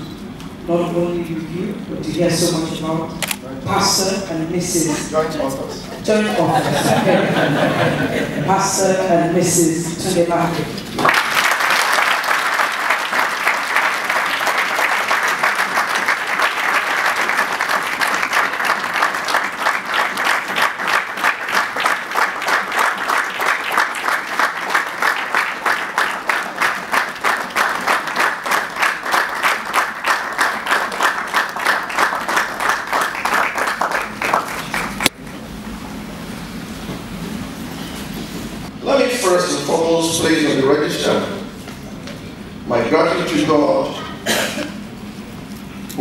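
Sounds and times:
audience applauding: 11.0s - 35.1s.

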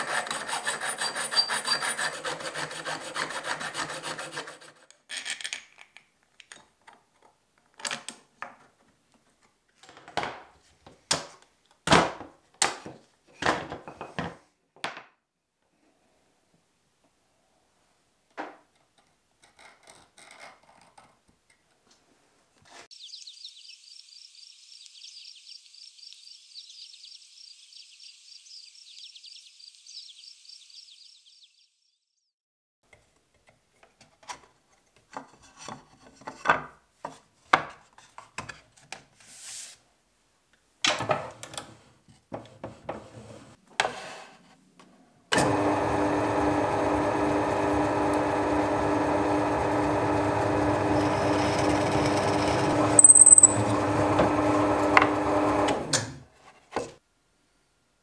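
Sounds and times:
scraping and knocking on wood: 34.0s - 38.6s, 42.1s - 44.4s
drill press motor humming: 45.4s - 53.0s, 53.6s - 55.8s.

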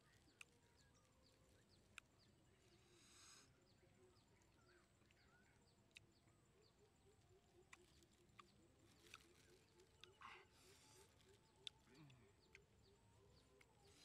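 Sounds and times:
faint open-air ambience: 0.0s - 14.0s.

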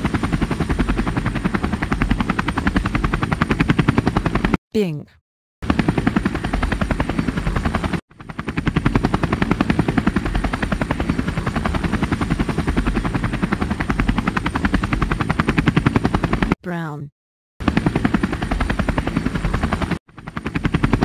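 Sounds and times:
helicopter engine noise: 0.0s - 4.6s, 5.6s - 17.0s, 17.6s - 21.0s
helicopter rotor chopping: 0.0s - 4.6s, 5.6s - 17.0s, 17.6s - 21.0s.

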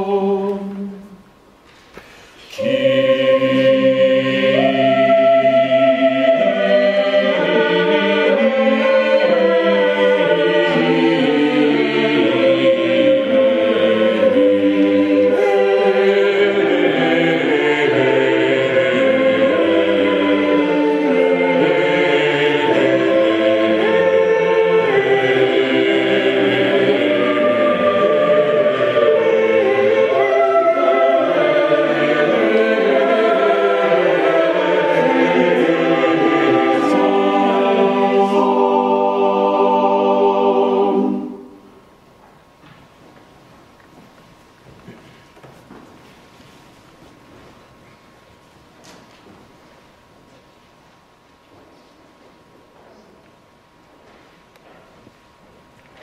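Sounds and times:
choir singing chant: 0.0s - 1.2s, 2.5s - 41.8s.

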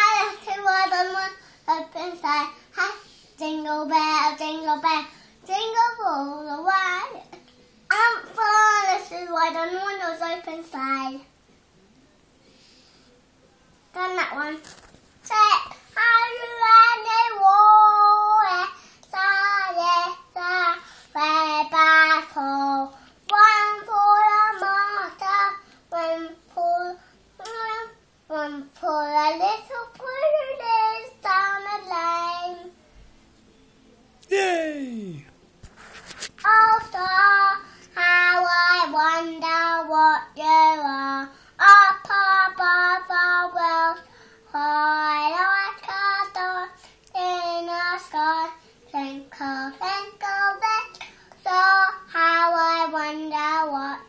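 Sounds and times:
young boy singing: 0.0s - 11.3s, 13.9s - 32.8s, 34.2s - 35.3s, 36.4s - 54.0s
boy singing: 34.2s - 35.3s, 36.5s - 54.0s.

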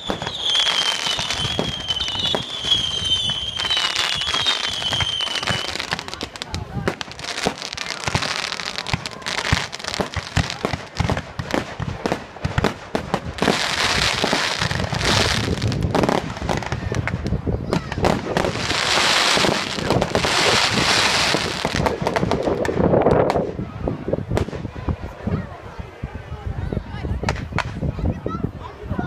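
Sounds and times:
fireworks hissing: 0.0s - 16.7s, 17.9s - 22.7s
fireworks bangs and pops: 0.0s - 23.5s, 24.3s - 24.8s, 27.2s - 27.8s.

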